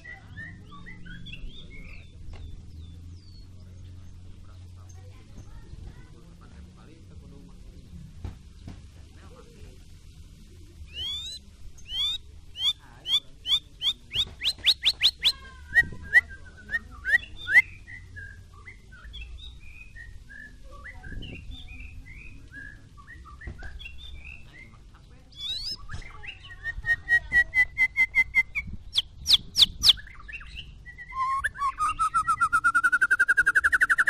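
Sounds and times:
bird singing whistles: 0:10.9 - 0:24.6, 0:25.3 - 0:34.0.

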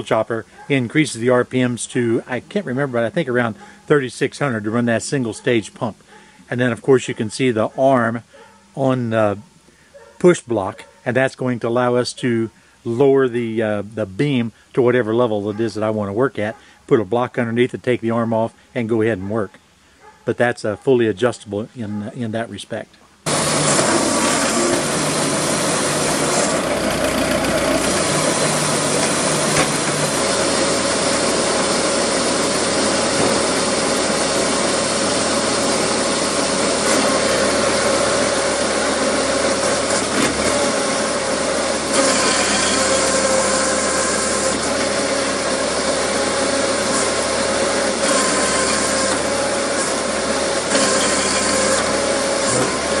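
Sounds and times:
constant mechanical whine: 0:23.2 - 0:53.0
tractor driving wood splitter: 0:23.3 - 0:53.0.

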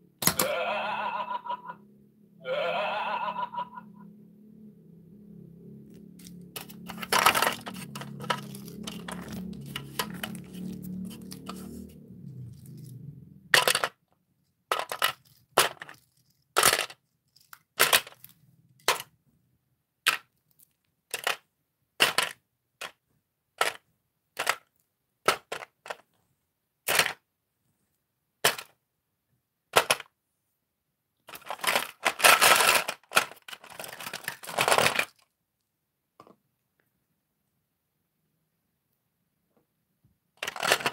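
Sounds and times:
plastic toys clattering: 0:06.2 - 0:19.2, 0:20.0 - 0:23.0, 0:23.6 - 0:26.2, 0:26.9 - 0:27.2, 0:28.4 - 0:28.8, 0:29.7 - 0:30.2, 0:31.2 - 0:35.3, 0:40.4 - 0:40.9
plastic toys clacking into tray: 0:06.6 - 0:11.8, 0:13.5 - 0:14.1, 0:14.7 - 0:19.1, 0:20.0 - 0:21.4, 0:22.0 - 0:23.0, 0:23.6 - 0:23.8, 0:24.4 - 0:26.1, 0:26.9 - 0:27.2, 0:28.4 - 0:28.8, 0:29.7 - 0:30.1, 0:31.3 - 0:35.2, 0:40.4 - 0:40.9.

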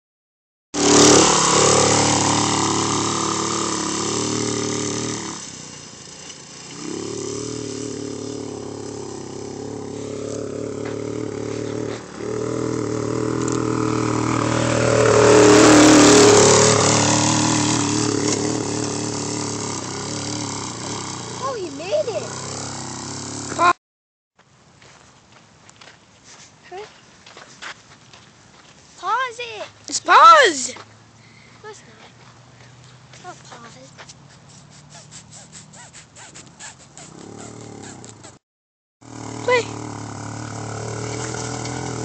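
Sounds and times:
dune buggy engine revving: 0:00.8 - 0:23.8, 0:33.2 - 0:38.4, 0:39.0 - 0:42.0.

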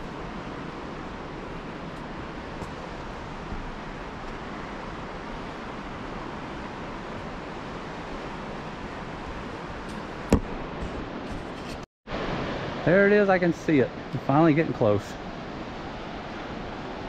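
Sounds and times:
river rapids rushing: 0:00.0 - 0:10.7.

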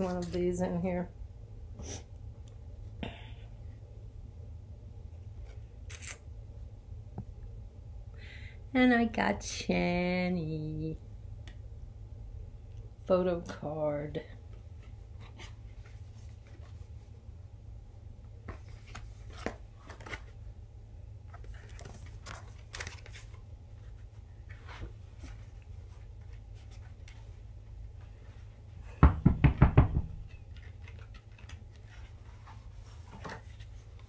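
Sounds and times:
steady low hum: 0:00.0 - 0:34.0
paper rustling: 0:18.4 - 0:20.4, 0:21.3 - 0:27.4, 0:30.4 - 0:34.0
rapid loud knocks: 0:29.0 - 0:30.2.

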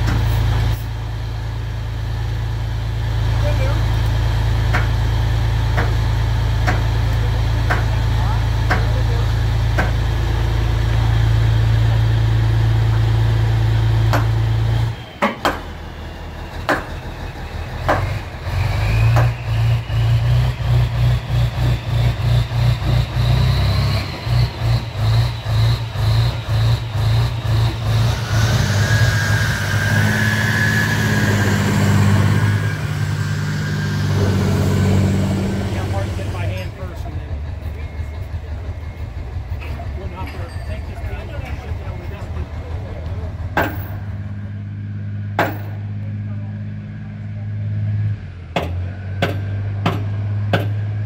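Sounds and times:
diesel engine running: 0:00.0 - 0:51.0
rising engine whine: 0:00.0 - 0:51.0
sharp metallic knocks: 0:04.7 - 0:05.0, 0:05.7 - 0:06.0, 0:06.6 - 0:07.0, 0:07.6 - 0:08.0, 0:08.6 - 0:09.0, 0:09.7 - 0:10.1, 0:14.1 - 0:14.5, 0:15.2 - 0:15.8, 0:16.6 - 0:17.0, 0:17.8 - 0:18.2, 0:19.0 - 0:19.6, 0:43.5 - 0:44.1, 0:45.3 - 0:45.8, 0:48.5 - 0:50.9.

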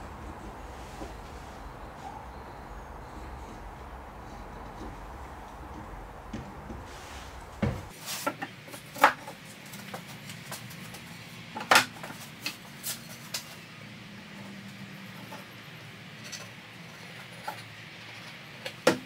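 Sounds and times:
wooden knocks and clunks: 0:04.7 - 0:08.0.

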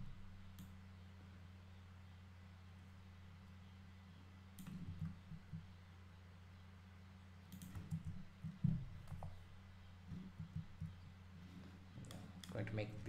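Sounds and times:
low electrical hum: 0:00.0 - 0:13.0
keyboard and mouse clicks: 0:04.6 - 0:05.7, 0:07.5 - 0:09.4.

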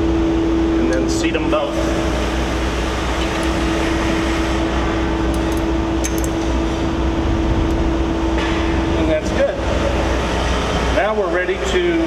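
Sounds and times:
machinery drone: 0:00.0 - 0:12.0
wrench clicking on metal: 0:05.3 - 0:06.4.

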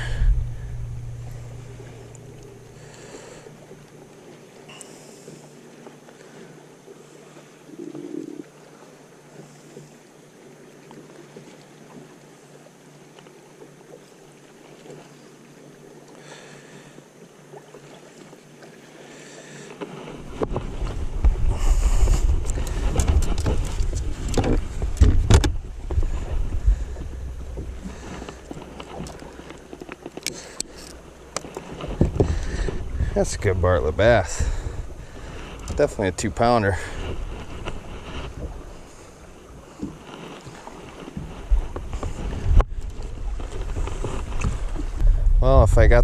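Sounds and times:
wind gusting on microphone: 0:00.0 - 0:02.9, 0:20.2 - 0:29.5, 0:31.0 - 0:39.3, 0:41.2 - 0:46.0
loud low rumble: 0:00.0 - 0:04.0, 0:24.7 - 0:29.8, 0:32.0 - 0:35.3
water lapping against boat hull: 0:00.0 - 0:46.0
handling noise: 0:22.2 - 0:35.8.

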